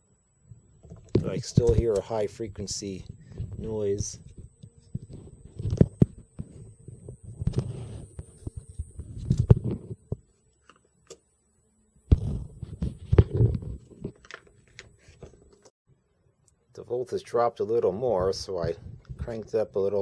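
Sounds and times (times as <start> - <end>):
high-pitched electronic whine: 0.0 - 15.7.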